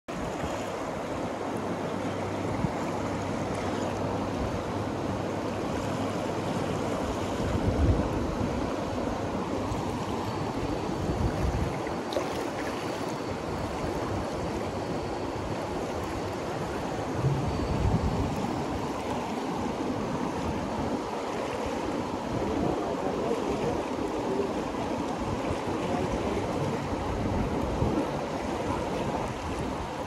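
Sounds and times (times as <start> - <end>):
river water rushing: 0.1 - 30.0
wind buffeting microphone: 6.7 - 24.5, 25.1 - 30.0.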